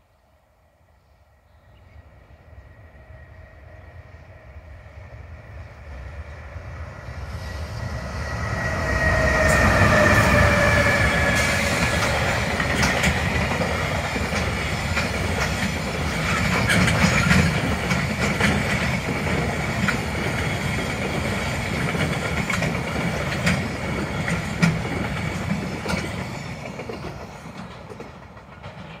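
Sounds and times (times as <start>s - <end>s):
electric locomotive passing: 0.0s - 29.0s
train wheels clacking on rail joints: 7.9s - 29.0s.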